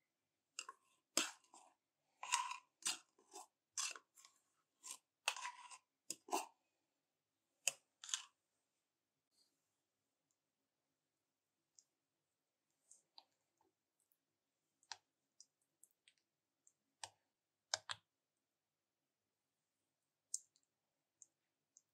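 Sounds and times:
metal spoon scraping a tin: 2.2s - 4.1s, 4.8s - 6.5s.

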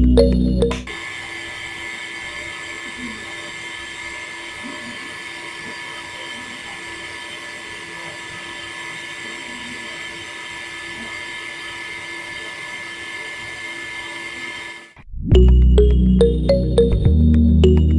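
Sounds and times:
loud music: 0.0s - 0.9s, 15.4s - 17.9s.

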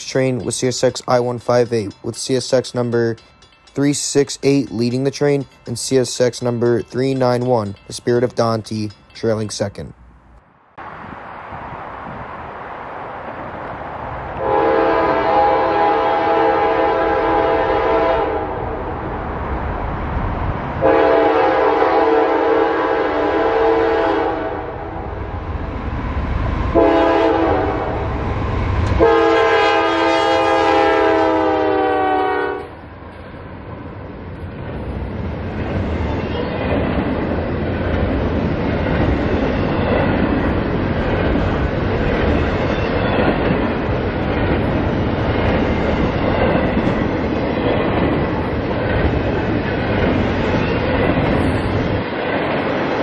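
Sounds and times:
train rumbling past: 0.0s - 53.0s
train air horn: 14.4s - 18.8s, 20.8s - 25.1s, 26.8s - 28.1s, 29.0s - 32.8s.

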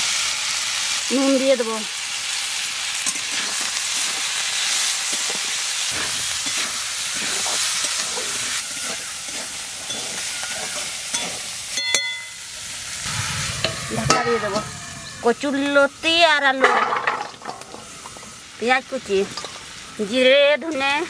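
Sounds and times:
vegetables sizzling in oil: 0.0s - 21.0s
spatula scraping wok: 3.0s - 18.6s.

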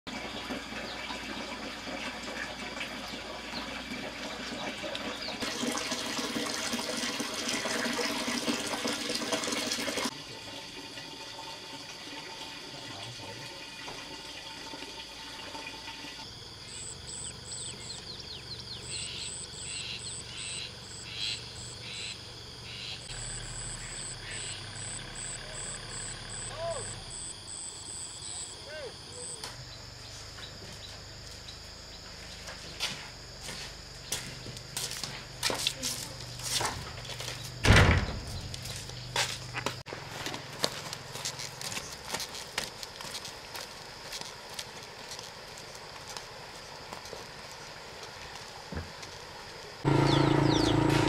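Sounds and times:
rushing water-like noise: 0.6s - 16.2s.

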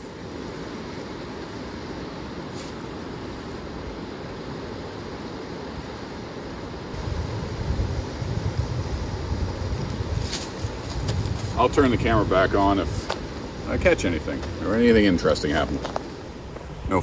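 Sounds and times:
wind rumble on microphone: 6.8s - 17.0s.

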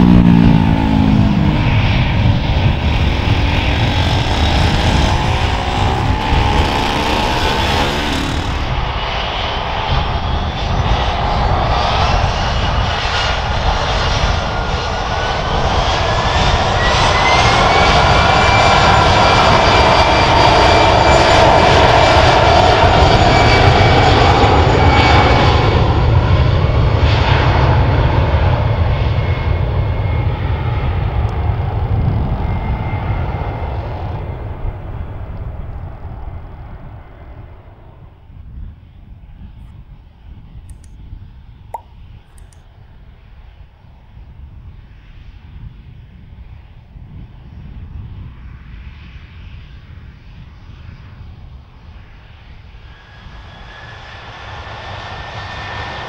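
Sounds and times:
jet engines spooling up: 0.0s - 25.5s
loud jet noise: 0.0s - 38.2s.

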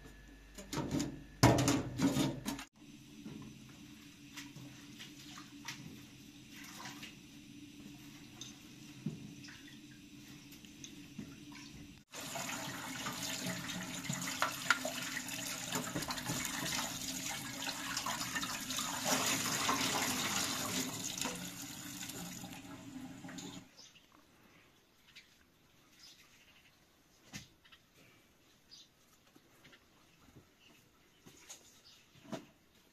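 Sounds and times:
water running from a tap: 4.6s - 23.7s.

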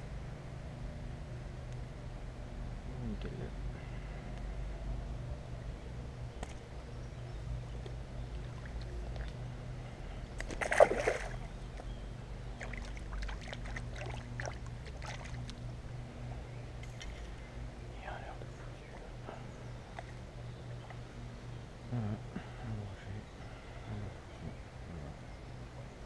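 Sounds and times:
fish splashing into water: 10.4s - 11.5s
hands splashing in water: 10.4s - 11.5s.

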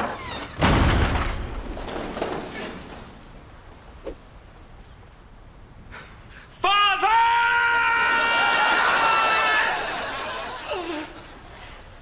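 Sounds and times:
wooden doors banging echo: 0.0s - 3.6s.

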